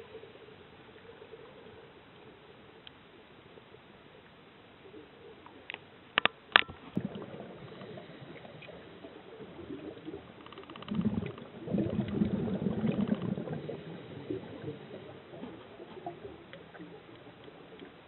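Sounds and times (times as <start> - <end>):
sharp underwater clicks: 5.4 - 7.9, 10.2 - 13.6
air bubbles from regulator: 7.0 - 17.9.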